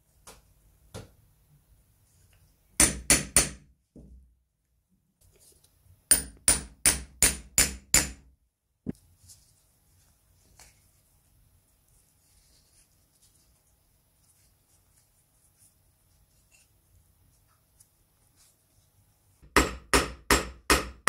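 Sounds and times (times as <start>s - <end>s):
hammer striking leather punch: 2.8s - 3.6s, 6.1s - 8.2s, 19.5s - 21.0s.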